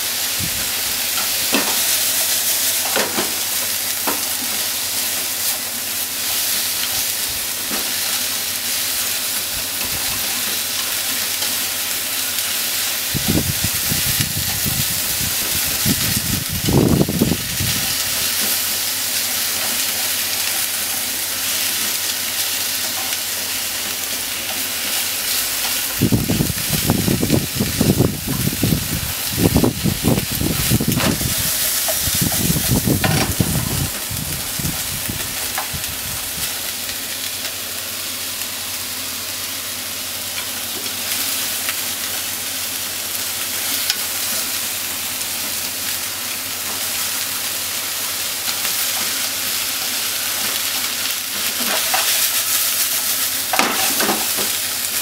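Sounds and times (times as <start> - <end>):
meat and onion sizzling in pan: 0.0 - 55.0
food scraping and clattering in pan: 1.1 - 5.6, 30.5 - 34.1, 49.8 - 55.0.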